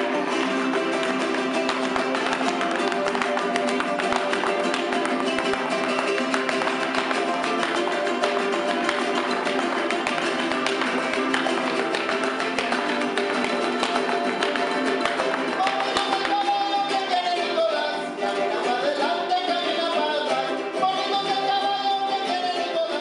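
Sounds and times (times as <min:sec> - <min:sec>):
small guitars strummed fast: 0:00.0 - 0:23.0
heel stamping on tile floor: 0:01.0 - 0:16.3.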